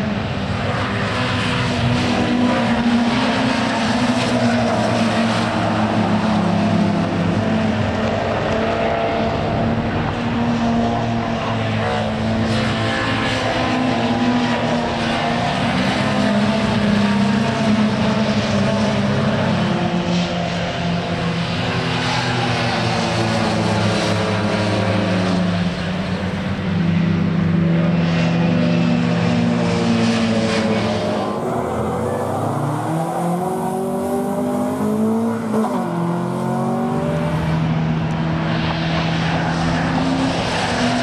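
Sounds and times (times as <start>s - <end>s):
race car engines passing: 0.0s - 41.0s.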